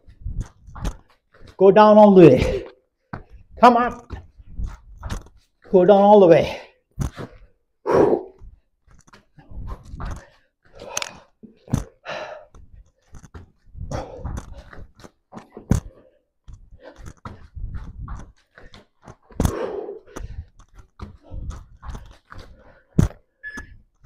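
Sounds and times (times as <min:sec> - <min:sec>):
hard breathing: 0:09.4 - 0:15.1, 0:15.8 - 0:23.3
thumps on gym floor mat: 0:23.0 - 0:23.2.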